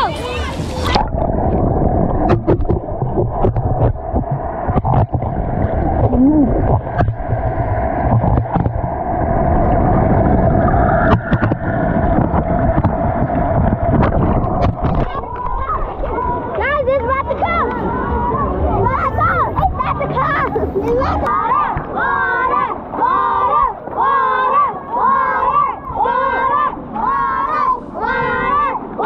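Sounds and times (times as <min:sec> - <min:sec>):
muffled underwater churning rumble: 0:00.0 - 0:29.0
sharp clicks and knocks: 0:02.3 - 0:05.4, 0:08.1 - 0:08.9, 0:11.1 - 0:11.6.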